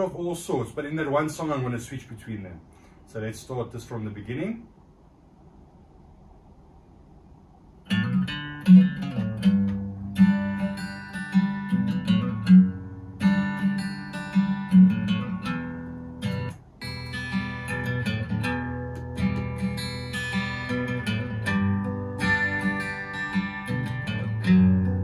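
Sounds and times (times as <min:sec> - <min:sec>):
acoustic guitar music: 0:07.9 - 0:25.0.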